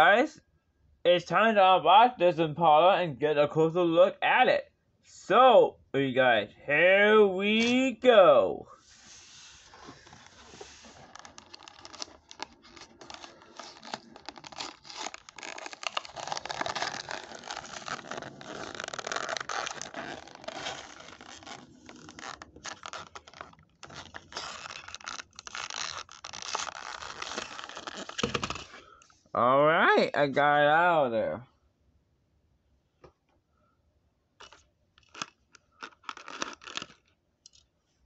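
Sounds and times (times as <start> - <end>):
plastic blister pack crackling: 10.0 - 28.7, 34.4 - 37.1.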